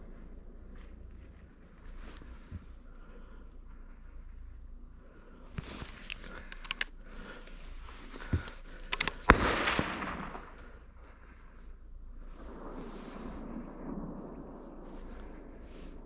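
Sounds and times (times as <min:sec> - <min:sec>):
sharp clicks and knocks: 0:05.8 - 0:06.9
rifle shot echoing: 0:08.8 - 0:11.2.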